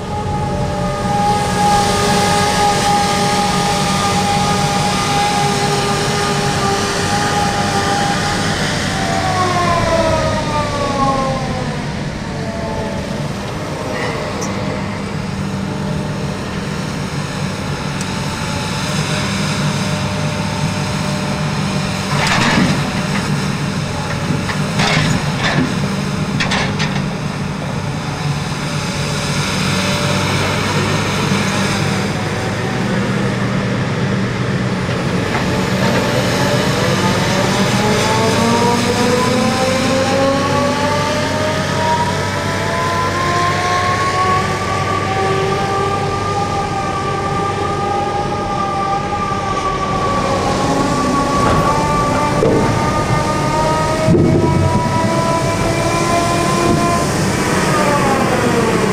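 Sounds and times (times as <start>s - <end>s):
timber handler drive whine: 45.8s - 58.9s.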